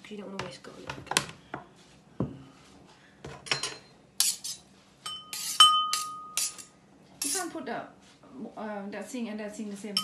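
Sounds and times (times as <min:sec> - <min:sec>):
knife scraping into ceramic bowl: 0:04.2 - 0:07.5.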